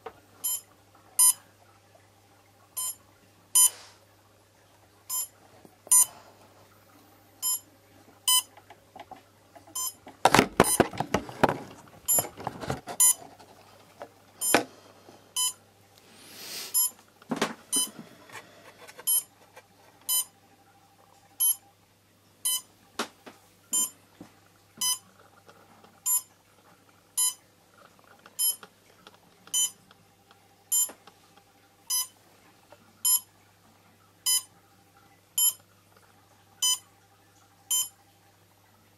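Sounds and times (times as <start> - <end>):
short electronic beeps: 0.4 - 0.6, 1.2 - 1.4, 2.8 - 3.0, 3.6 - 3.8, 5.1 - 5.3, 5.9 - 6.1, 7.4 - 7.6, 8.3 - 8.5, 9.8 - 10.0, 12.1 - 12.3, 13.0 - 13.2, 15.4 - 15.6, 16.8 - 17.0, 17.7 - 17.9, 19.1 - 19.3, 20.1 - 20.3, 21.4 - 21.6, 22.5 - 22.7, 23.8 - 24.0, 24.8 - 25.0, 26.1 - 26.3, 27.2 - 27.4, 28.4 - 28.6, 29.5 - 29.8, 30.7 - 30.9, 31.9 - 32.1, 33.0 - 33.3, 34.3 - 34.5, 35.4 - 35.6, 36.6 - 36.8, 37.7 - 38.0.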